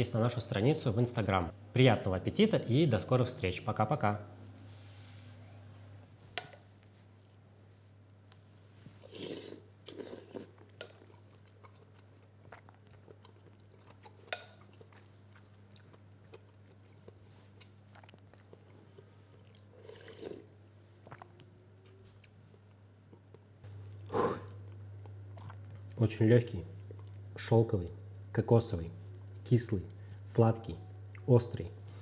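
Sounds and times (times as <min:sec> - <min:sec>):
person sipping and chewing: 0:08.3 - 0:26.0.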